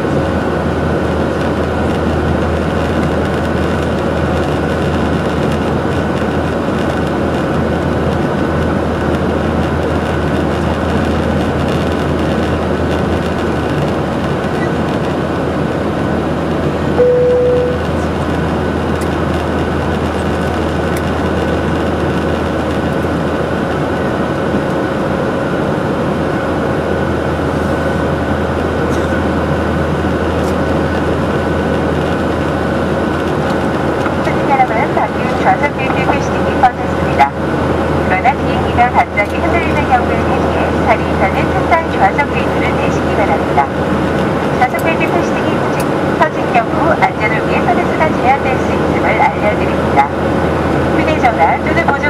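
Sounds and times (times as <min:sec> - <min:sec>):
jet engine cabin drone: 0:00.0 - 0:52.0
low hum: 0:16.8 - 0:21.6
short tone: 0:17.0 - 0:18.1.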